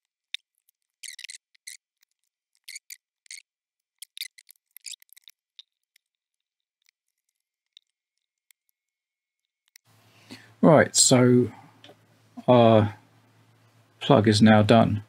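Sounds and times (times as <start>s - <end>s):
solder flux sizzling and crackling: 0.0s - 10.1s.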